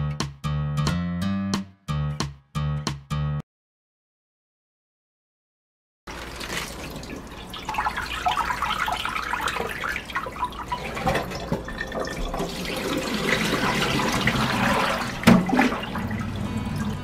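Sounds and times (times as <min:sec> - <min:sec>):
water splashing in a pot: 0:06.1 - 0:17.0.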